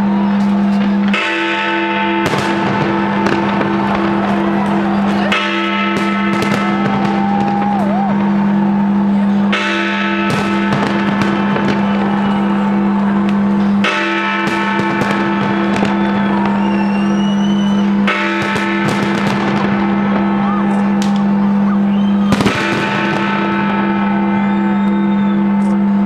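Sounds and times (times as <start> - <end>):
fireworks bursting and crackling: 2.2 - 8.6, 10.2 - 21.4, 22.2 - 23.8.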